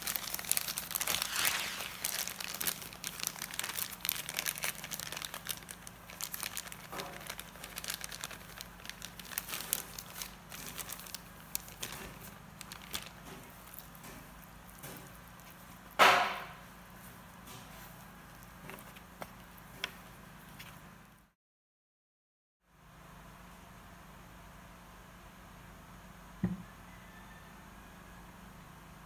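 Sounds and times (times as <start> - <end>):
plastic bag crinkling: 0.0 - 19.9
loud thump: 26.4 - 26.6.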